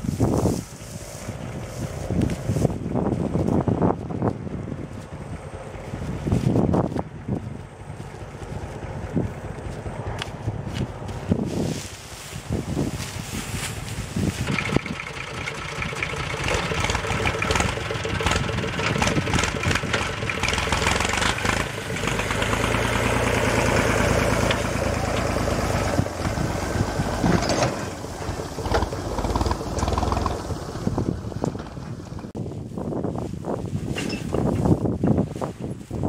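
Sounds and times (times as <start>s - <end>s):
tractor engine running: 0.0s - 36.0s
knocks and clatter: 14.4s - 22.9s, 27.0s - 32.4s.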